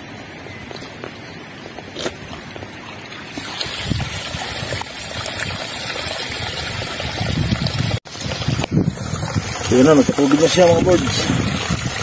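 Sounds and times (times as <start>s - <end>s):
wind rumbling on microphone: 1.7s - 12.0s
water trickling: 3.0s - 12.0s.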